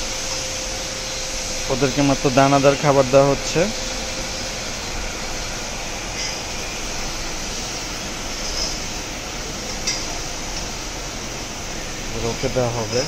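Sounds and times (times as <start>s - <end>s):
steady rushing background noise: 0.0s - 13.0s.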